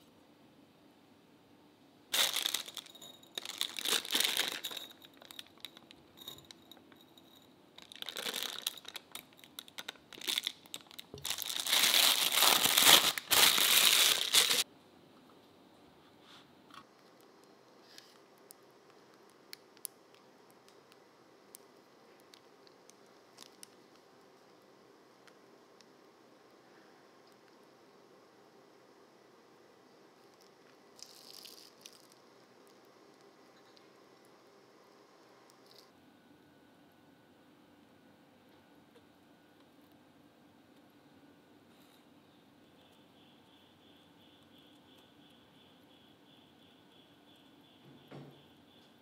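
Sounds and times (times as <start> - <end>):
plastic piping bag crinkling: 2.1 - 6.6, 7.8 - 14.7, 22.2 - 24.0, 30.3 - 32.2.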